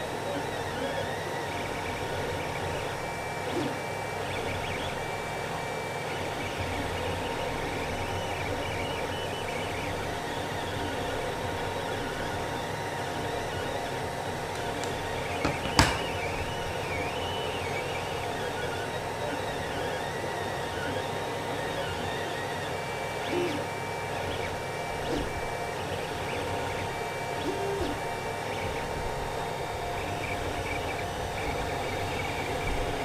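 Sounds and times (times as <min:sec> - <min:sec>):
fan hum: 0:00.0 - 0:20.0
stepper motors whining: 0:00.0 - 0:33.0.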